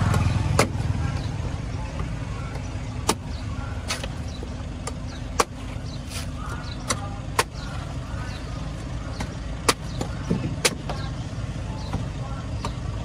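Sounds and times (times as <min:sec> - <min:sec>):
cleaver chopping coconut husk: 0:00.0 - 0:01.2, 0:01.9 - 0:04.2, 0:04.8 - 0:07.9, 0:09.1 - 0:11.1
steady low rumble: 0:00.0 - 0:13.0.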